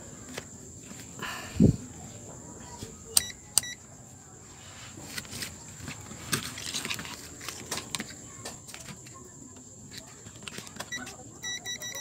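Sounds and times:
multimeter beep: 0:03.2 - 0:03.8, 0:10.9 - 0:12.0.

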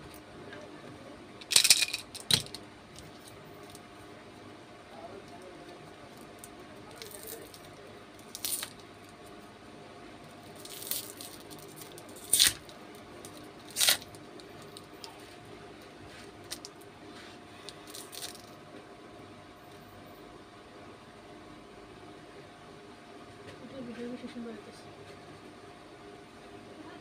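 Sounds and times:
plastic wrapper crinkling and tearing: 0:06.2 - 0:08.9, 0:10.5 - 0:15.2, 0:17.7 - 0:18.5.

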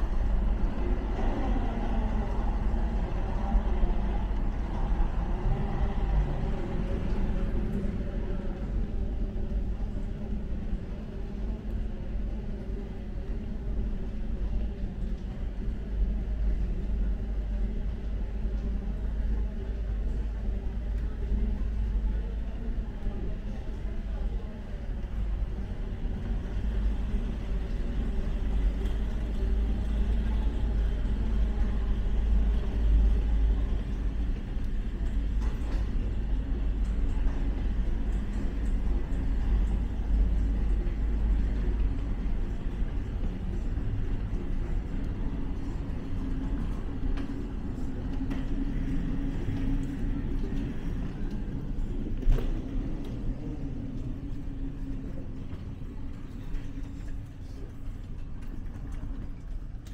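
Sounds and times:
moving walkway rumbling: 0:00.0 - 0:59.9.

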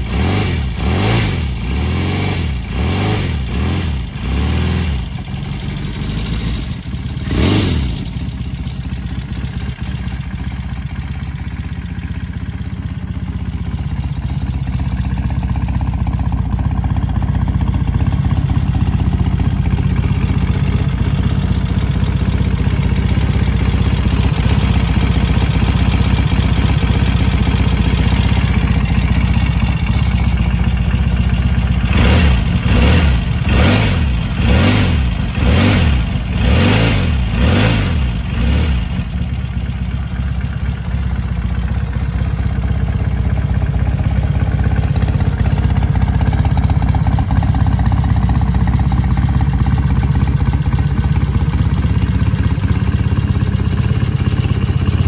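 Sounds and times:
motorcycle engine idling and revving: 0:00.0 - 0:55.0.

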